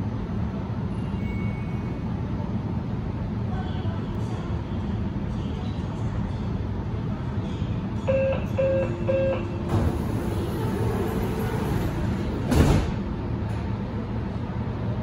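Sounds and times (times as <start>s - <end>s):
train carriage low hum: 0.0s - 15.0s
door warning beeps: 8.1s - 9.6s
sliding doors closing with thump: 9.7s - 13.1s.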